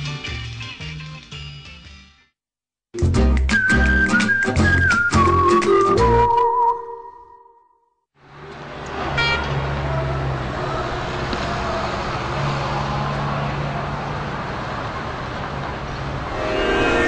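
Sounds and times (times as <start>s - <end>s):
road traffic rumble: 8.2s - 17.0s
brief high tone: 16.4s - 17.0s.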